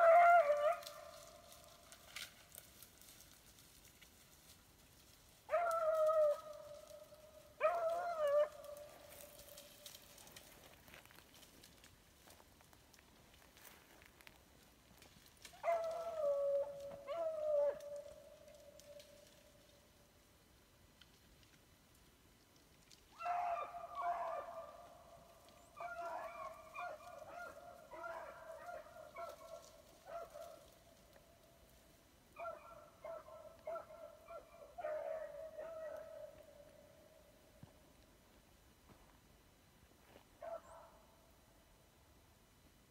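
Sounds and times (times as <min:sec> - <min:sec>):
dogs baying: 0:25.8 - 0:30.6.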